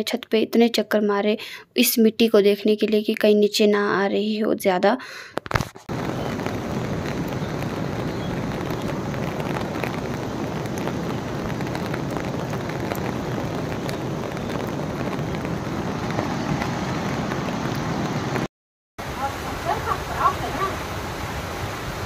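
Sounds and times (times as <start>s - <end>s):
raindrops ticking on surfaces: 5.9s - 21.7s
steady rain falling: 5.9s - 22.0s.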